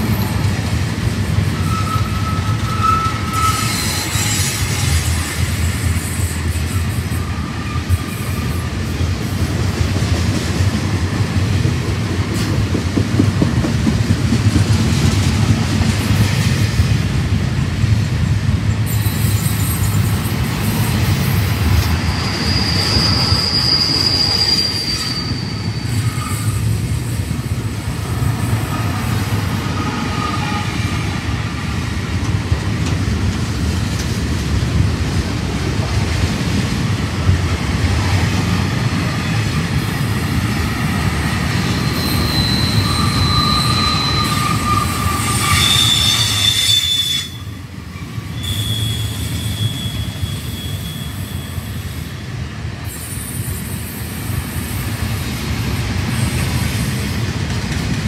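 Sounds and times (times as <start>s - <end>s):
train wheels rumbling on rails: 0.0s - 58.0s
train wheels squealing: 1.4s - 9.4s, 18.8s - 31.2s, 39.0s - 57.2s.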